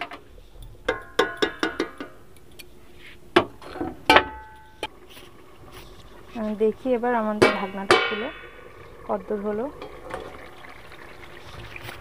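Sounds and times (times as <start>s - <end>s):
metal cookware clinking: 0.9s - 2.6s, 7.3s - 8.7s, 9.8s - 10.3s.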